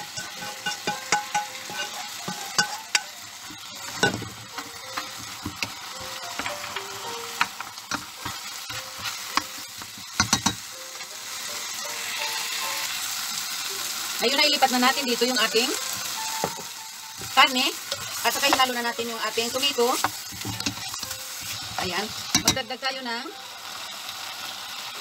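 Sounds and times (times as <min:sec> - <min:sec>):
food sizzling in a pot: 0:00.0 - 0:25.0
ladle knocking and scraping pot: 0:00.1 - 0:06.8, 0:07.4 - 0:10.6, 0:20.0 - 0:22.6.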